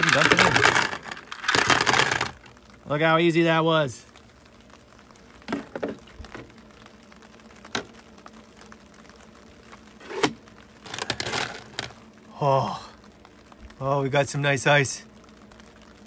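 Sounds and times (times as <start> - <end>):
ice cubes clicking in plastic: 0.0 - 2.6, 10.2 - 12.0
faint steady hum: 0.0 - 16.0.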